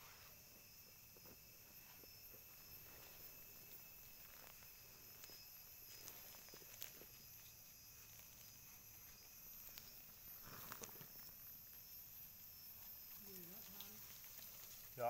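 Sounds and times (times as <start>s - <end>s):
footsteps on dry pine needles: 2.2s - 11.4s.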